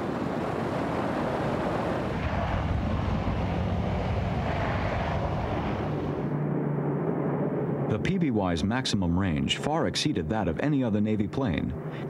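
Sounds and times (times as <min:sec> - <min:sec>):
broad rushing noise: 0:00.0 - 0:08.2
aircraft engines droning: 0:00.0 - 0:12.0.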